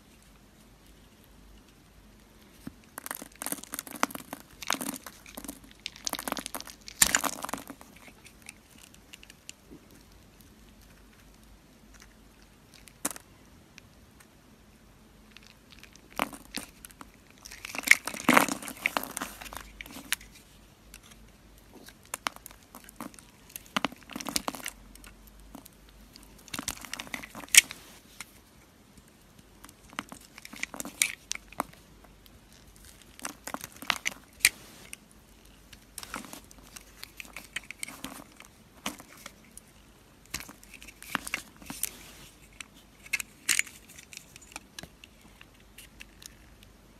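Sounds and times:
soap cubes crunching: 2.9s - 9.2s.

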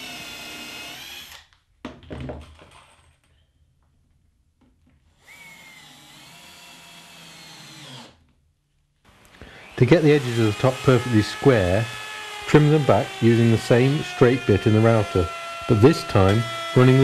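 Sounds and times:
power drill whining: 0.0s - 1.5s, 5.1s - 8.3s, 9.1s - 17.0s.

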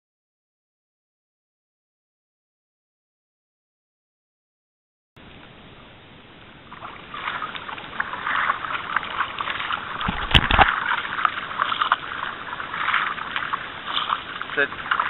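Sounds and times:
water rushing past hull: 5.2s - 15.0s
paddle blades splashing: 5.4s - 15.0s.

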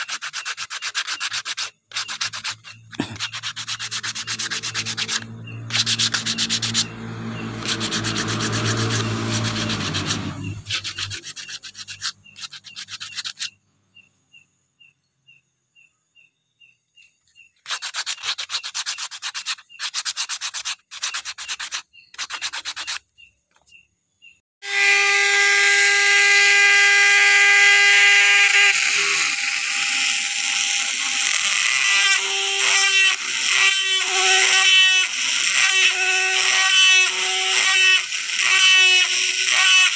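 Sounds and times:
rotary carving tool whining: 0.0s - 13.6s, 24.6s - 39.9s
sanding wheel running: 0.0s - 13.6s, 17.6s - 23.0s, 24.7s - 39.9s
short rubbing strokes: 0.0s - 13.6s, 17.6s - 23.1s.

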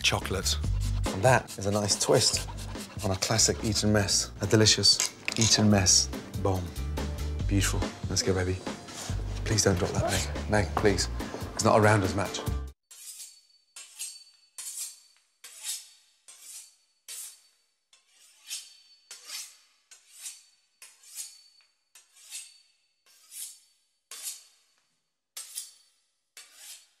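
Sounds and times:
knife sawing through crisp pastry: 0.5s - 4.2s, 12.9s - 24.8s, 26.4s - 27.0s.

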